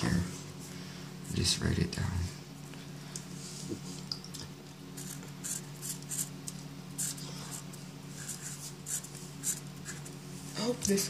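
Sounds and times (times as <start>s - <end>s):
marker writing on paper: 5.0s - 6.3s, 7.0s - 10.1s.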